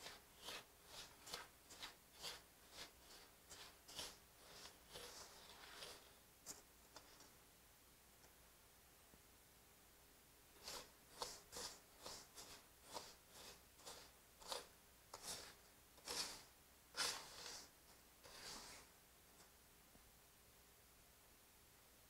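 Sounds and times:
wooden spoon scraping flour in pan: 0.0s - 7.4s, 10.6s - 18.9s.

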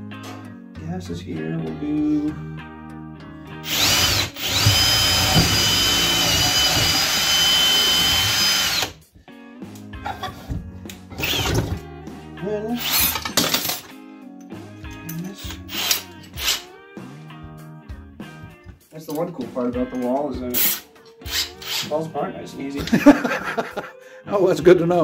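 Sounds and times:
cordless drill whining: 3.6s - 9.0s, 11.2s - 11.7s, 12.8s - 13.2s, 15.4s - 16.6s, 20.6s - 22.0s.

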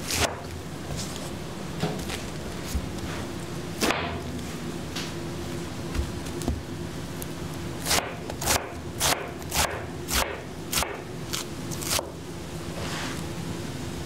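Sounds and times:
steady low hum: 0.0s - 14.0s
knife slicing lettuce on cutting board: 7.8s - 12.1s.

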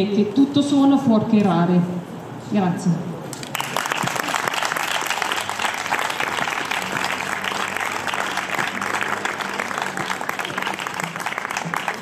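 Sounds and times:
small crowd applauding: 3.3s - 12.0s.

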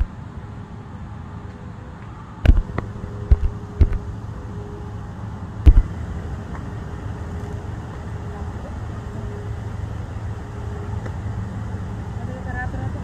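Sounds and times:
boat engine drone: 0.0s - 13.0s
faint steady hum: 0.0s - 13.0s
sharp knocks: 2.5s - 4.0s, 5.7s - 5.9s.

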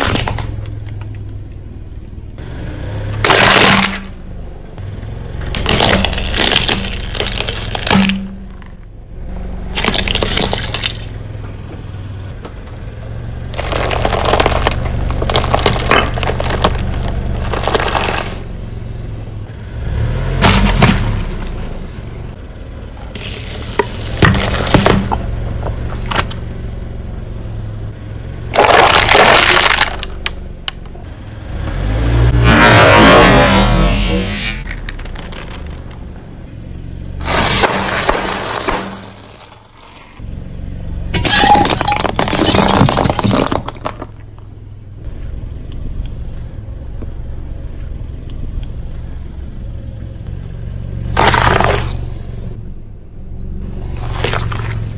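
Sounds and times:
tyre crushing brittle objects: 0.0s - 0.6s, 3.2s - 4.1s, 5.4s - 8.8s, 9.7s - 11.2s, 13.5s - 18.5s, 23.1s - 25.2s, 28.5s - 30.4s, 34.5s - 36.0s, 37.2s - 40.2s, 41.2s - 44.4s, 51.2s - 52.1s, 53.9s - 54.9s
low hum of car: 0.0s - 54.9s.

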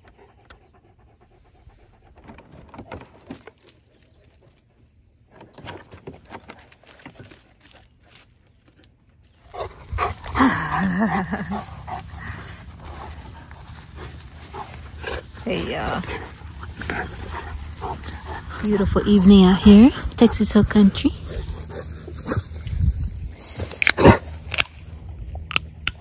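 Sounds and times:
dog panting heavily: 0.0s - 2.6s, 9.5s - 22.6s.

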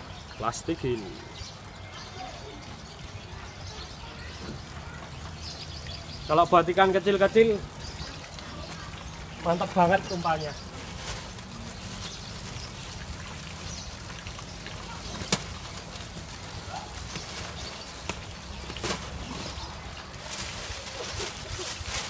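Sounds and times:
faint water movement: 0.0s - 22.0s
plastic bag crinkling: 10.6s - 13.6s, 14.9s - 22.0s.

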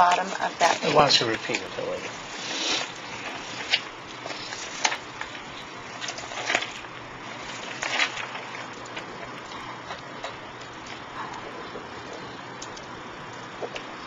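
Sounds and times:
videotape hiss: 0.0s - 14.0s
papers rustling on a table: 0.1s - 9.4s.

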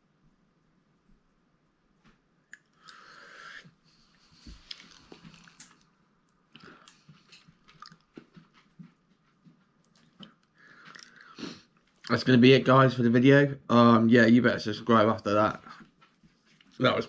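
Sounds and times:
lip smacking: 2.5s - 3.6s, 4.5s - 8.3s, 9.8s - 12.1s
breath: 2.8s - 4.6s, 10.5s - 11.8s.

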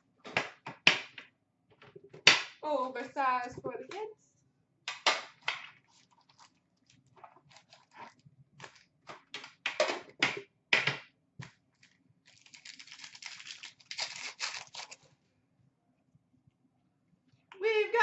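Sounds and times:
foil wrapper tearing and crinkling: 5.9s - 8.9s, 11.7s - 15.1s
card packs clicking and rustling: 7.5s - 9.7s, 11.4s - 15.1s.

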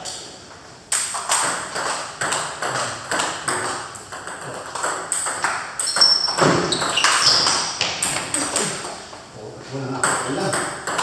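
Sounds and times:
table tennis ball hits: 0.9s - 8.9s, 10.0s - 11.0s.

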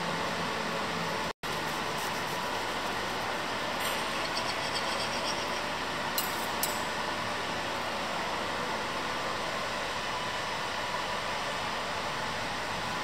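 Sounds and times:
room noise hiss: 0.0s - 6.2s.

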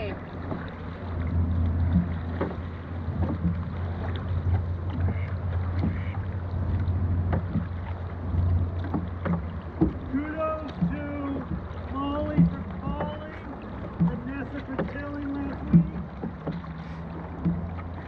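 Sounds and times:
paddle strokes splashing: 0.0s - 18.0s.

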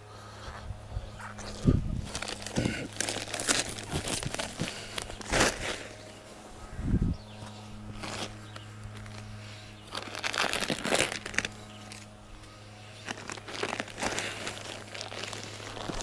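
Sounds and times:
steady low hum: 0.0s - 16.0s
plastic bag crinkling: 1.4s - 6.0s, 9.9s - 12.1s, 13.0s - 16.0s.

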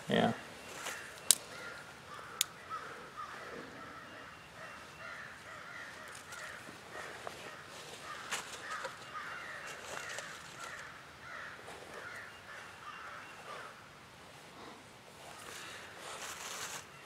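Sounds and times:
crows cawing: 0.7s - 13.9s.

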